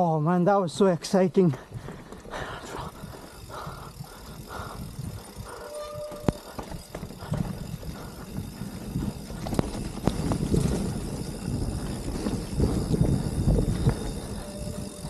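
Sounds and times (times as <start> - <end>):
bike tyres rumbling on dirt: 1.7 - 15.0
bike knocks and rattles: 4.8 - 15.0.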